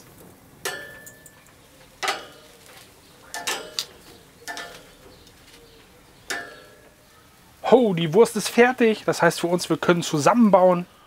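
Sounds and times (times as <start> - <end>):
metal utensils clinking on cookware: 0.6 - 2.6, 3.3 - 5.1.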